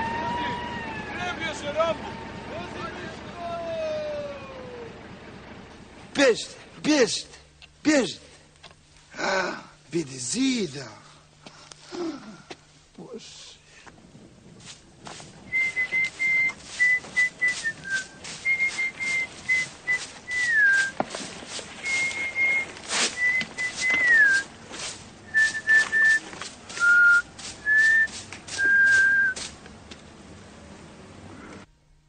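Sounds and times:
broom sweeping: 14.6s - 29.6s
man whistling a tune: 15.5s - 21.0s, 21.8s - 24.5s, 25.3s - 29.4s.

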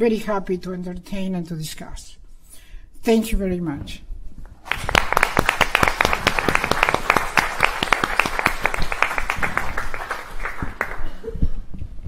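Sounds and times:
audience applauding: 4.6s - 11.3s.

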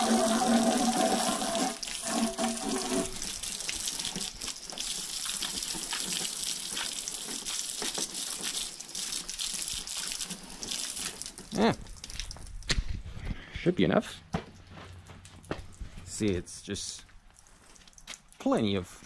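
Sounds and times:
hose spraying water: 0.0s - 11.7s.

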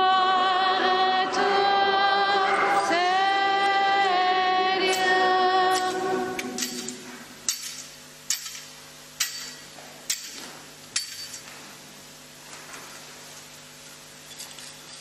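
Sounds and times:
metal censer clinking on chains: 14.2s - 15.0s.

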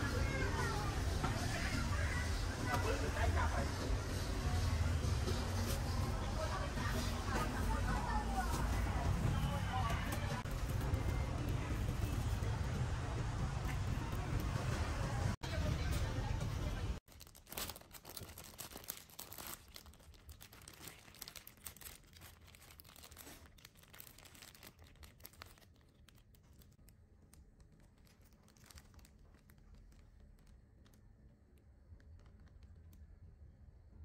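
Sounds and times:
faint crinkling and crackling: 15.3s - 33.5s.

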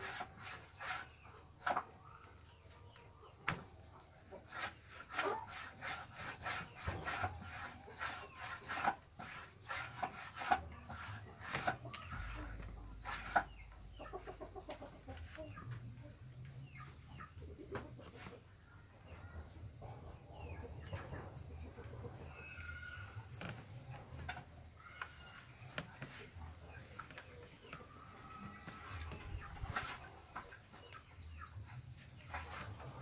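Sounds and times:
cricket chirping: 0.0s - 1.0s, 11.9s - 18.3s, 19.1s - 24.8s
bamboo cages clicking and rattling: 0.0s - 33.0s.

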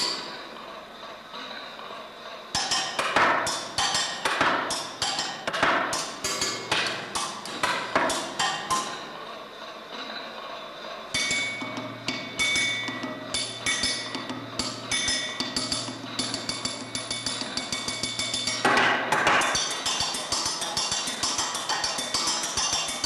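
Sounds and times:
metal tool clanging on iron: 2.6s - 9.0s, 11.2s - 23.0s
ringing metallic tones: 11.2s - 18.7s.

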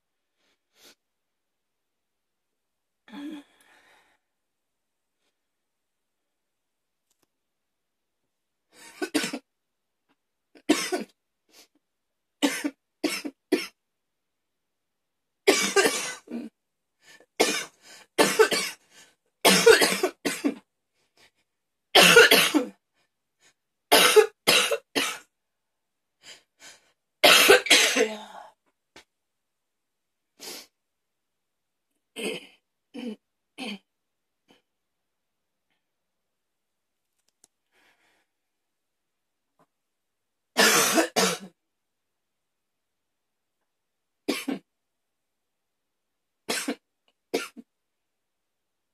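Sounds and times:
woman coughing: 8.9s - 9.4s, 15.5s - 16.5s, 17.4s - 18.8s, 19.5s - 20.6s, 22.0s - 22.7s, 23.9s - 25.2s, 27.2s - 28.4s, 40.6s - 41.5s.

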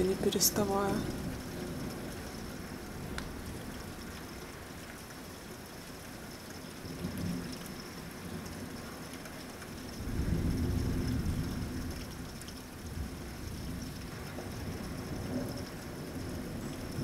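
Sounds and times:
heavy rain: 0.0s - 17.0s
thunder rumbling: 10.0s - 12.0s.

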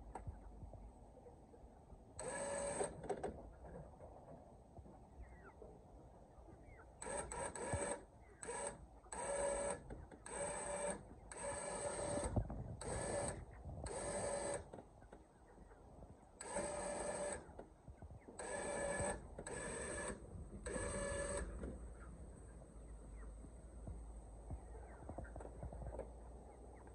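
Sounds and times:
electric winch motor whine: 2.2s - 3.2s, 7.0s - 14.7s, 16.4s - 17.4s, 18.4s - 21.8s.

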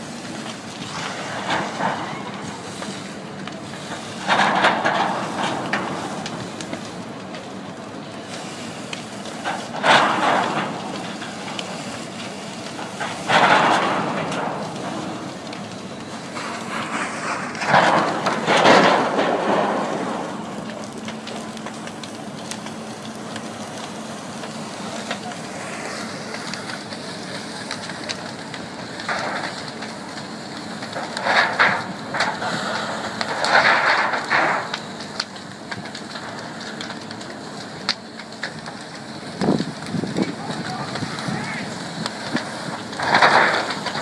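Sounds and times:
fire and water spray rushing: 0.0s - 44.0s
loud bursts of rushing noise: 16.1s - 21.5s, 24.2s - 27.7s.

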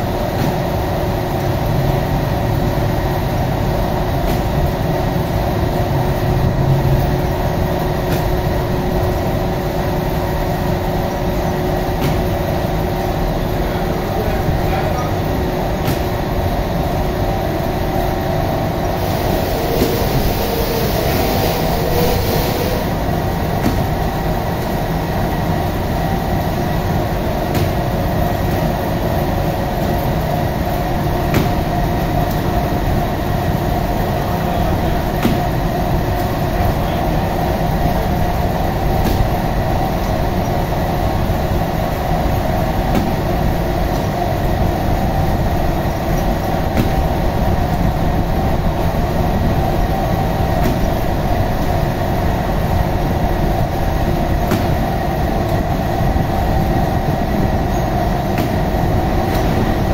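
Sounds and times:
dough-sheeting machine rumbling: 0.0s - 59.9s
hiss: 18.1s - 24.4s.

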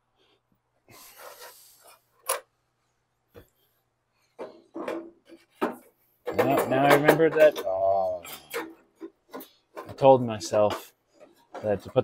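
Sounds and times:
hand tools and metal parts clinking: 4.4s - 12.0s.

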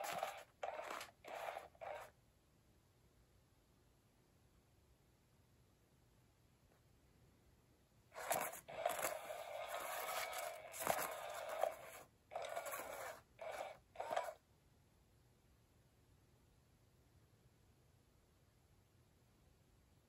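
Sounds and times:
small motor whirring: 0.0s - 2.1s, 8.2s - 14.4s
wand scraping fabric cover: 0.0s - 2.1s, 8.2s - 14.4s.

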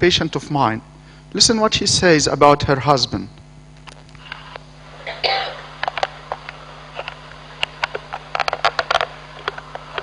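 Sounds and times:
electrical hum: 0.0s - 10.0s
cough-like noise: 5.0s - 5.8s.

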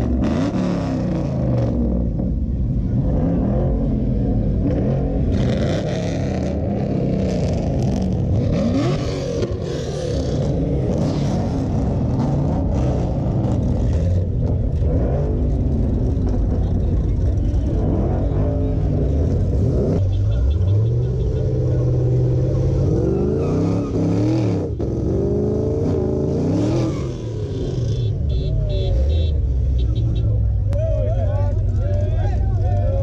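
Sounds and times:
car engines idling and revving: 0.0s - 33.0s.

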